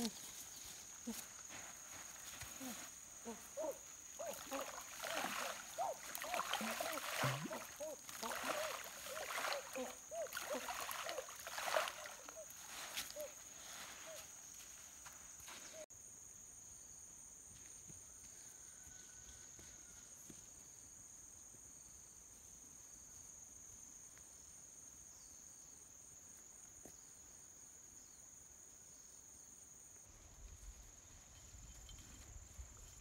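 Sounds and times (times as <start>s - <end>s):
higher pulsing insect trill: 0.0s - 17.3s
insects buzzing: 0.0s - 17.3s.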